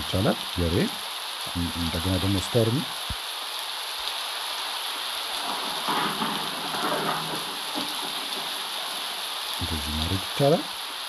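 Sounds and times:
steady rain hiss: 0:00.0 - 0:11.0
thunder rolling: 0:05.2 - 0:10.8.

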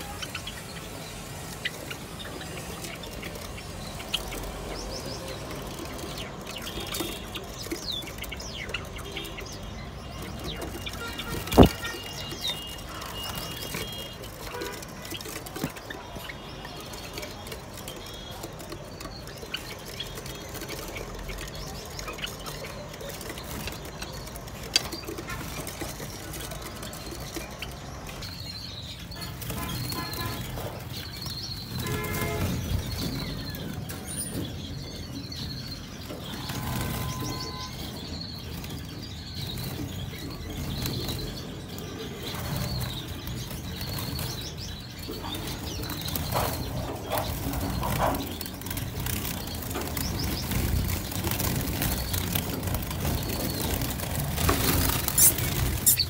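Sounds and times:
small birds chirping: 0:00.0 - 0:56.0
wings flapping: 0:10.9 - 0:16.2, 0:45.5 - 0:56.0.

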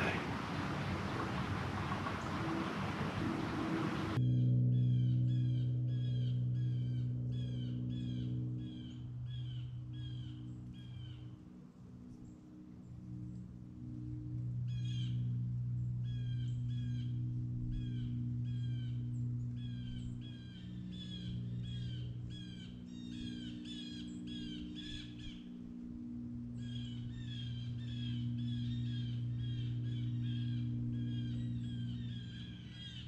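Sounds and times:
crows cawing: 0:00.0 - 0:04.2, 0:19.8 - 0:25.6, 0:26.6 - 0:33.0
steady low drone: 0:00.0 - 0:33.0.

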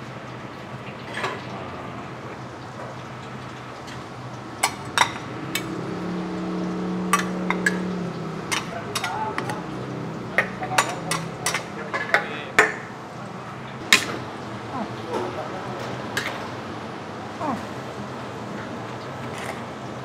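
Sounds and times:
steady background noise: 0:00.0 - 0:20.0
low hum: 0:04.4 - 0:08.8.

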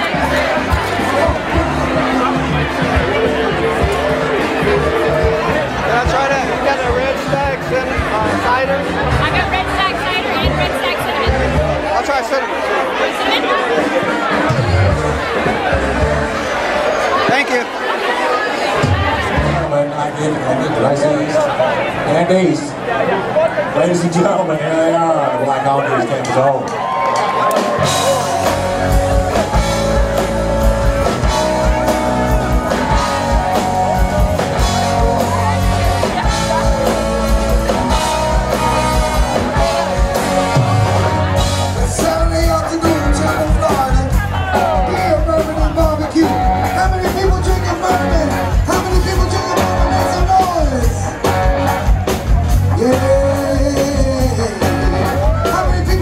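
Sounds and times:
electric guitar: 0:00.0 - 0:12.0, 0:26.8 - 0:56.0
bass guitar: 0:00.0 - 0:12.2, 0:13.8 - 0:17.2, 0:18.8 - 0:20.0, 0:26.8 - 0:56.0
live rock band playing: 0:00.0 - 0:22.0, 0:26.0 - 0:56.0
drum beat: 0:27.5 - 0:56.0
person singing: 0:52.7 - 0:56.0.

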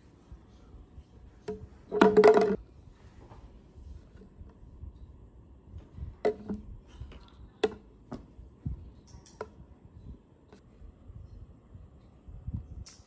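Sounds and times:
plastic bottle knocking on wooden table: 0:01.9 - 0:02.6.

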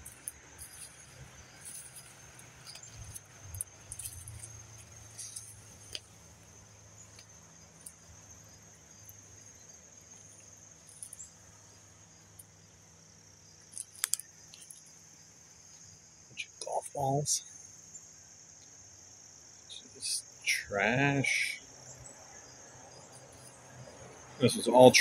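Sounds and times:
footsteps crunching on twigs: 0:00.0 - 0:08.0
high-pitched insect chorus: 0:00.0 - 0:25.0.

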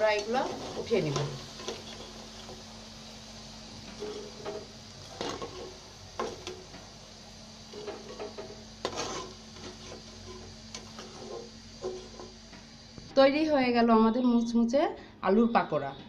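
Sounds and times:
metal spoon scraping a wok: 0:00.0 - 0:02.6, 0:03.8 - 0:06.7, 0:07.7 - 0:12.4
food sizzling in hot oil: 0:00.0 - 0:13.6.

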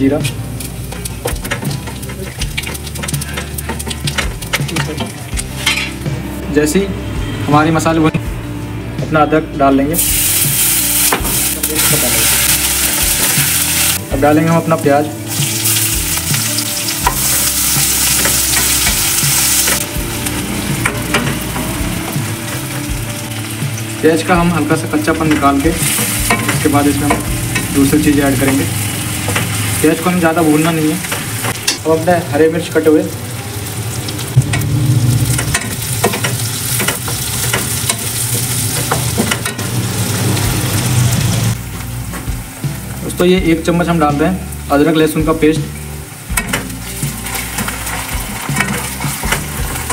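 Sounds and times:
onions sizzling in butter: 0:00.0 - 0:06.0, 0:10.0 - 0:43.2, 0:44.2 - 0:49.9
spatula scraping and tapping pan: 0:00.2 - 0:06.0
low hum: 0:34.3 - 0:35.9.

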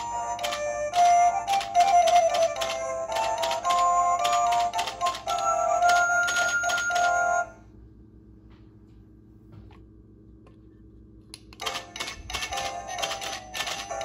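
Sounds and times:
christmas tune from figurines: 0:00.0 - 0:07.6, 0:11.6 - 0:14.0
mechanical tap-dance clicking: 0:00.4 - 0:06.0.

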